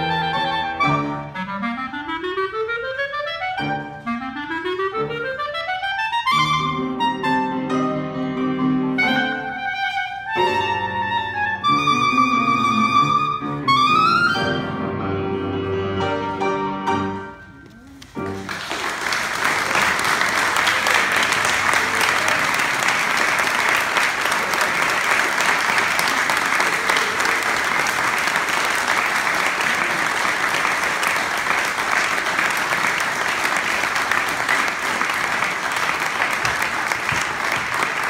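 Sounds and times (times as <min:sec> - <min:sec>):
audience applauding: 0:17.8 - 0:38.0.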